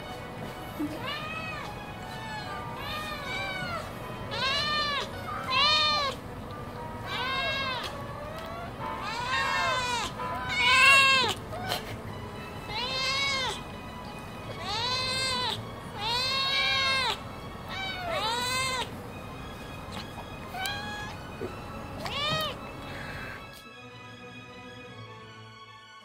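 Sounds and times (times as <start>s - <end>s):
cats meowing: 0.0s - 23.6s
quiet background music: 0.0s - 26.0s.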